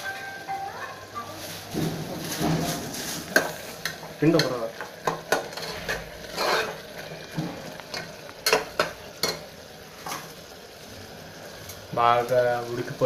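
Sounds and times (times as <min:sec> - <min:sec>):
food sizzling low: 0:00.0 - 0:13.0
ladle scraping metal pot: 0:02.2 - 0:09.4.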